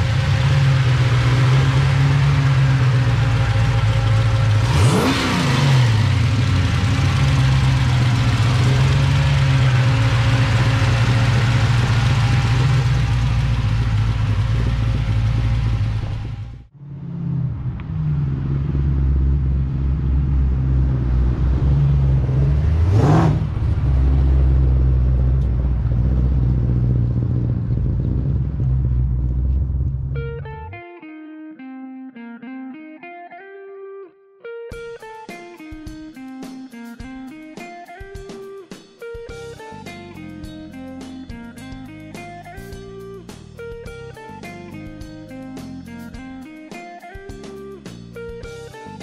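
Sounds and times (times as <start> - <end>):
car engine idling: 0.0 - 30.4
engine revving: 0.0 - 30.6.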